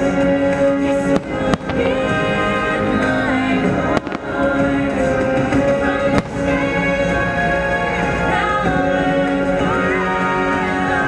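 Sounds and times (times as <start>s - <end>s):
loud orchestral music: 0.0s - 11.0s
fireworks bangs: 1.0s - 7.3s.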